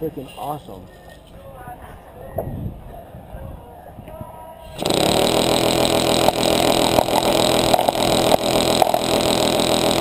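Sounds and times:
airsoft minigun firing rapid buzz: 0:04.8 - 0:10.0.

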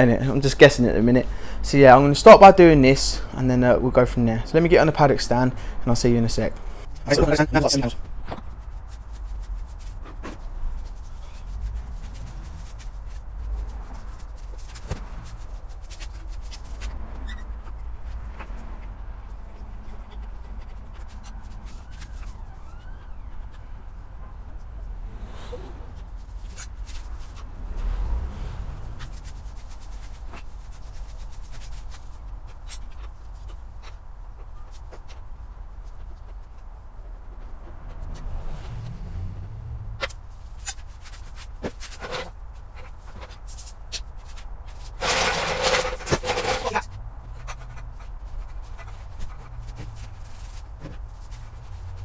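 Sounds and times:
shuffling footsteps: 0:40.2 - 0:52.0
hand tool clicking and scraping: 0:44.7 - 0:50.6.

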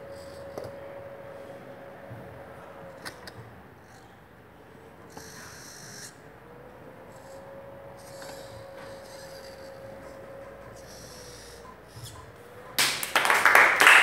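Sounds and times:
servo motors whirring: 0:00.0 - 0:12.8
loud applause: 0:12.8 - 0:14.0.

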